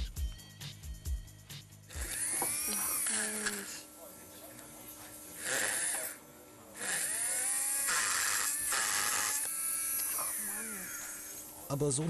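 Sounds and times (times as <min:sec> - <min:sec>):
dental handpiece grinding plastic: 0:06.8 - 0:11.5.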